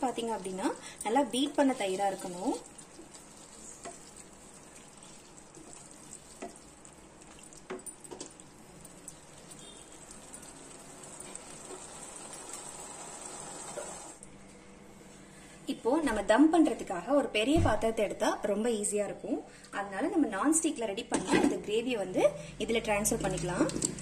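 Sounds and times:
gravy sizzling in a pan: 0:00.0 - 0:14.2.

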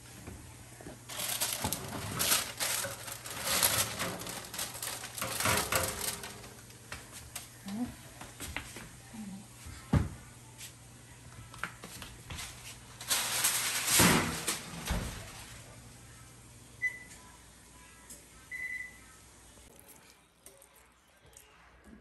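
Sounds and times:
rustling clatter: 0:01.1 - 0:06.7.

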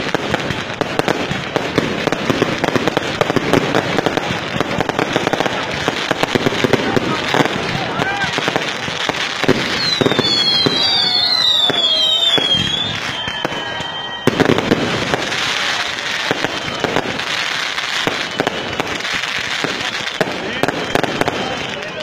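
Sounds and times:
fireworks bangs and crackles: 0:00.0 - 0:22.0
high wavering whistle: 0:09.8 - 0:14.6.

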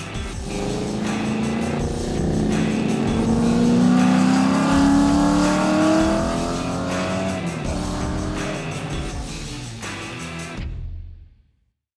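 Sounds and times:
background music: 0:00.0 - 0:11.4
race car accelerating past: 0:00.4 - 0:09.3.

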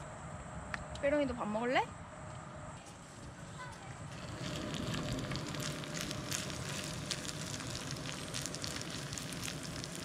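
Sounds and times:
food sizzling on a griddle: 0:04.2 - 0:10.0.

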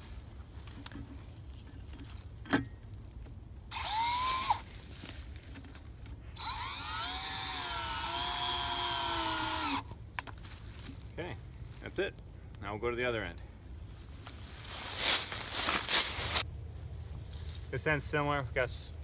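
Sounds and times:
cordless drill driving bolts: 0:03.7 - 0:04.6, 0:06.4 - 0:09.9.

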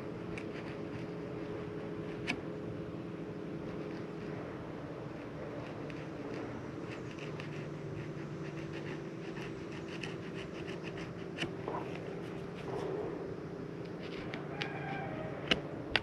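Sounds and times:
steady low hum: 0:00.0 - 0:16.0
knife scraping fish: 0:05.7 - 0:12.5.

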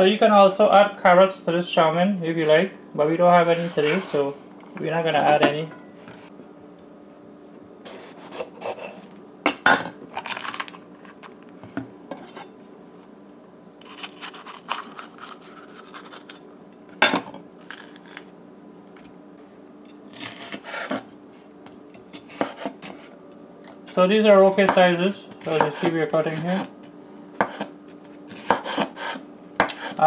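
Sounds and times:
knife cutting on wooden board: 0:07.9 - 0:09.0, 0:22.2 - 0:23.1, 0:27.4 - 0:27.7, 0:28.3 - 0:30.0.

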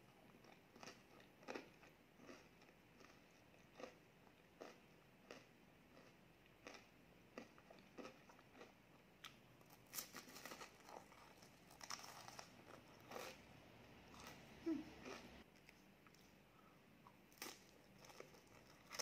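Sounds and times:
crunching and chewing ice cream cone: 0:00.0 - 0:13.5, 0:17.3 - 0:19.0.

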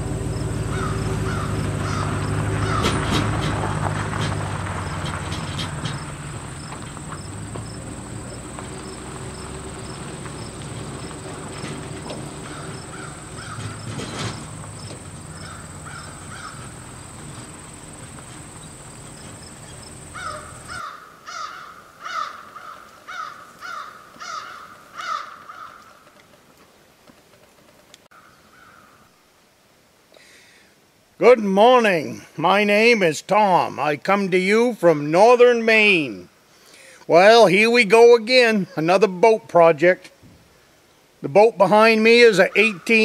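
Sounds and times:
crow cawing: 0:00.7 - 0:03.0, 0:12.4 - 0:13.8, 0:15.3 - 0:16.9, 0:19.8 - 0:26.1, 0:28.1 - 0:29.1
steady low rumble: 0:04.1 - 0:20.8
thin high whine with ticks: 0:04.9 - 0:20.8.

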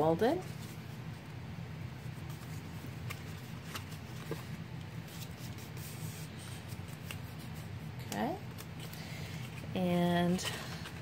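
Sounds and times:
paper rustling: 0:02.1 - 0:09.7.

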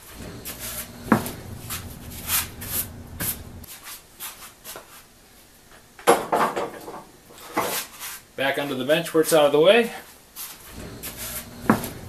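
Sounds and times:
grinder scraping and clunking on wood: 0:00.0 - 0:03.7, 0:10.7 - 0:12.0.

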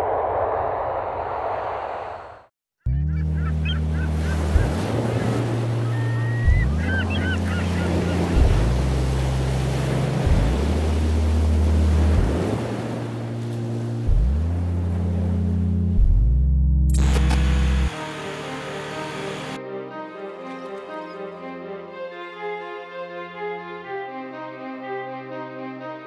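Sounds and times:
gull calls: 0:02.9 - 0:08.6
deep synth bass line: 0:02.9 - 0:19.6
waves breaking on a beach: 0:04.1 - 0:14.2.

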